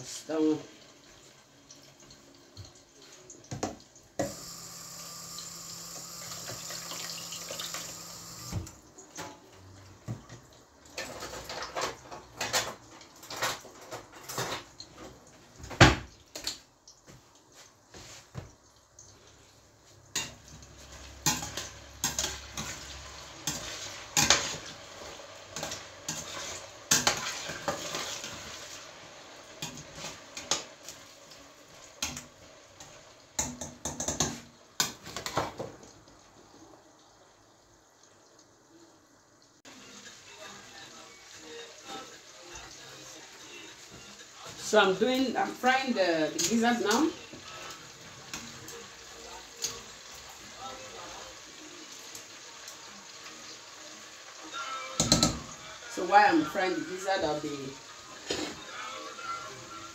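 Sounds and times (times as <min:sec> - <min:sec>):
metal pots and utensils clattering: 0:10.1 - 0:16.6, 0:20.1 - 0:28.9, 0:29.5 - 0:31.0, 0:31.9 - 0:35.9, 0:44.5 - 0:48.6, 0:58.2 - 0:58.7.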